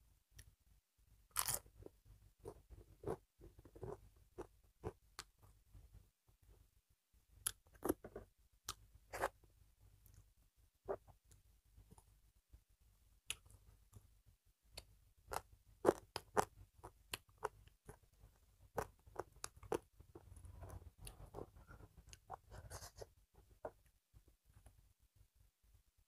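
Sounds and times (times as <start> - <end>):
person chewing food: 1.3 - 5.4, 14.8 - 18.1, 18.7 - 22.4.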